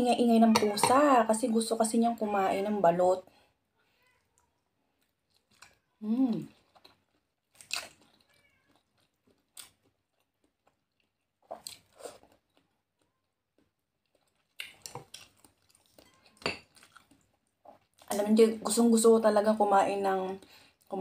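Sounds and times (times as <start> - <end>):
chewing and crunching: 4.3 - 18.1
cat meowing: 8.2 - 8.8.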